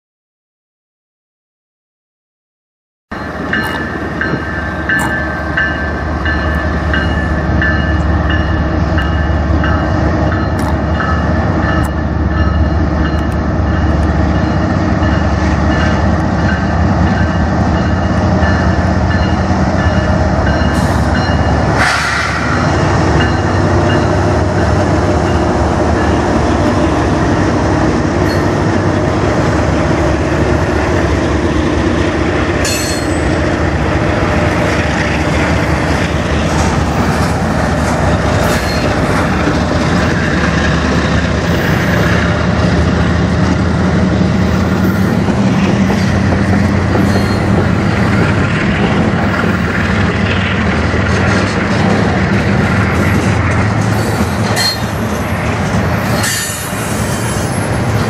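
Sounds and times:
diesel locomotive engines rumbling: 0:03.1 - 0:58.0
sharp clank or screech: 0:21.8 - 0:22.6, 0:47.0 - 0:47.5, 0:54.0 - 0:55.0, 0:56.0 - 0:57.6
high ringing tones: 0:32.6 - 0:33.4, 0:46.6 - 0:48.1.

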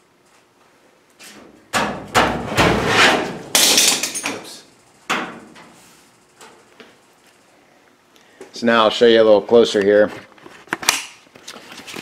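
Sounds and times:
loud knocks and clatter: 0:01.8 - 0:04.4.

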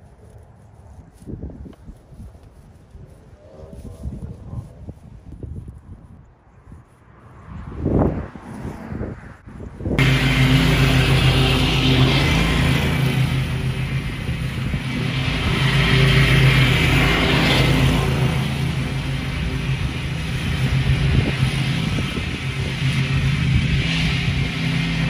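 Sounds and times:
riding mower engine cutting grass: 0:10.0 - 0:25.0.

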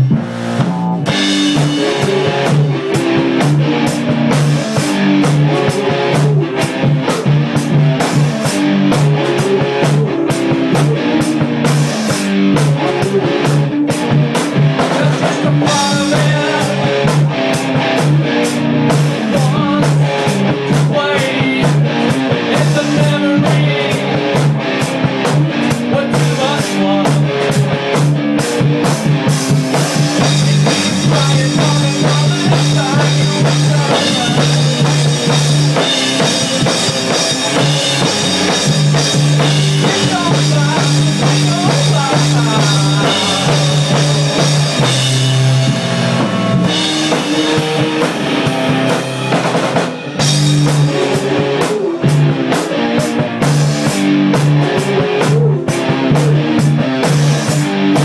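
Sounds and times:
drum kit beat: 0:00.0 - 0:58.0
guitar: 0:00.0 - 0:58.0
low bass notes: 0:00.0 - 0:58.0
rock music: 0:00.0 - 0:58.0.

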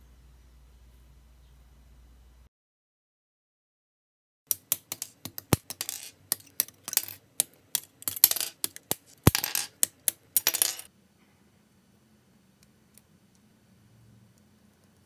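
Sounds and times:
plastic parts clicking and clattering: 0:04.5 - 0:10.9.

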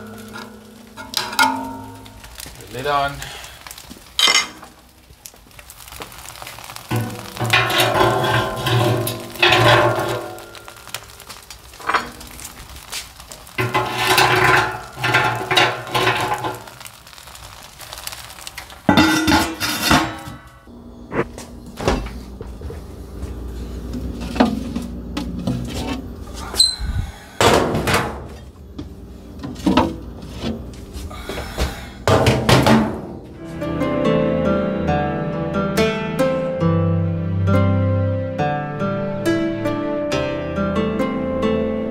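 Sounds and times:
metal and glass clattering: 0:00.0 - 0:02.5, 0:04.2 - 0:04.9, 0:06.8 - 0:17.0, 0:18.5 - 0:20.7.

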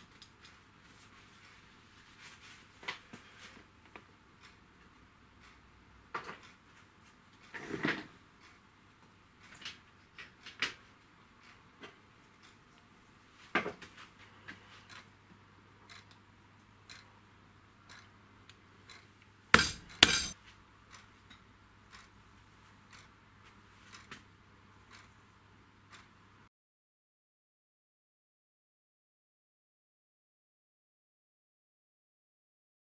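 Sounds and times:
hard objects clinking: 0:19.6 - 0:20.4.

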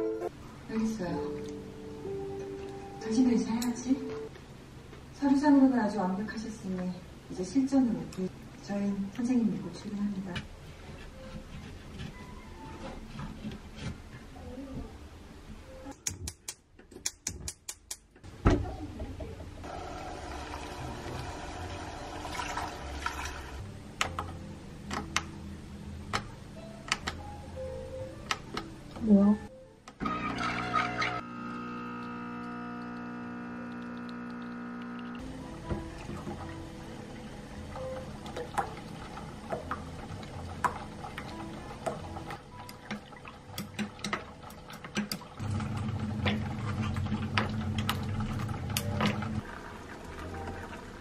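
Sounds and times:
water pouring into a pot: 0:20.1 - 0:23.6
low steady hum: 0:31.2 - 0:42.3.

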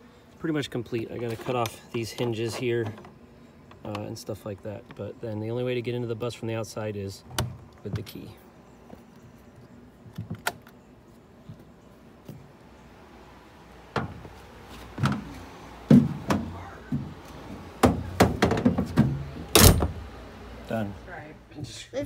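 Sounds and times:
knocks and thumps of bus door: 0:13.9 - 0:14.3, 0:14.9 - 0:20.0.

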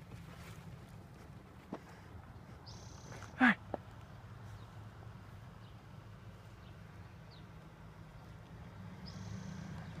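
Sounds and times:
faint vehicle engine hum: 0:00.0 - 0:10.0
faint bird chirps: 0:02.6 - 0:03.4.

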